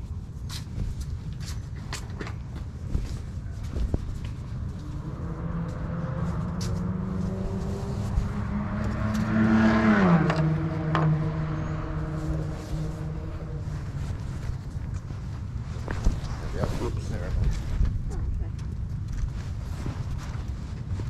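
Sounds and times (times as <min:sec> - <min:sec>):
car driving past: 0:04.9 - 0:14.8.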